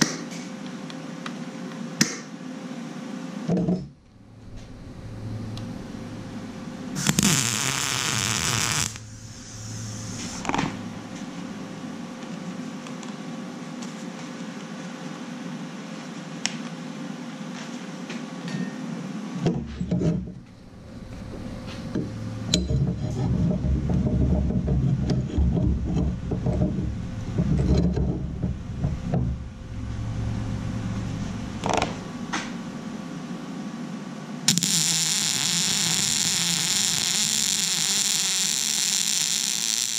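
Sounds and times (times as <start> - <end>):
faint steady hum: 0.0 - 39.9
welder crackling buzz: 5.6 - 11.8, 34.5 - 39.9.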